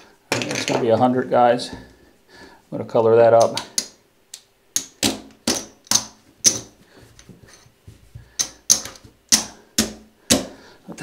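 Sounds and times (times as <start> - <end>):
casino chips clacking on felt: 4.8 - 6.8.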